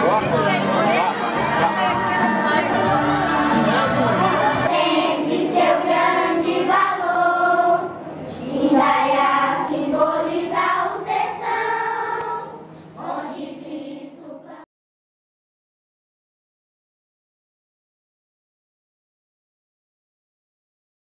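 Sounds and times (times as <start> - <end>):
group of voices singing: 0.0 - 14.7.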